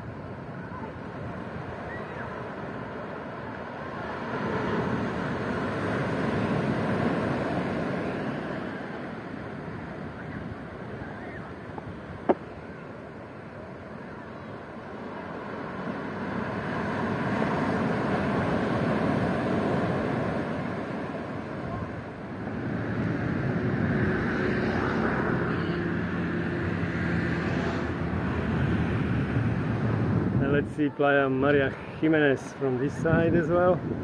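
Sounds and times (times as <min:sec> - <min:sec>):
sea surf: 0:00.0 - 0:34.0
wind on the microphone: 0:15.9 - 0:34.0.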